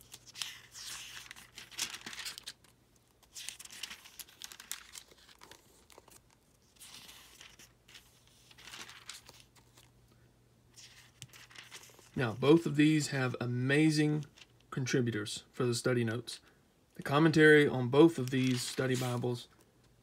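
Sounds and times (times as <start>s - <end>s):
thin pages rustling: 0.0s - 9.9s, 10.7s - 12.2s, 18.0s - 19.7s.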